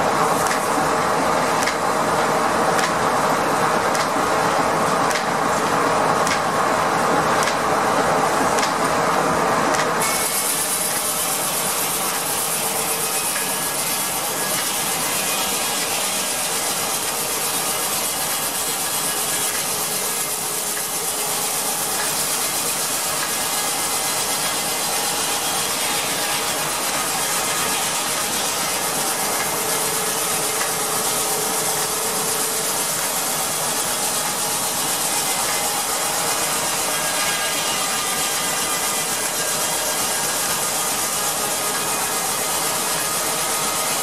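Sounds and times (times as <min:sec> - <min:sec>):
circular saw blade cutting timber: 0:09.7 - 0:44.0.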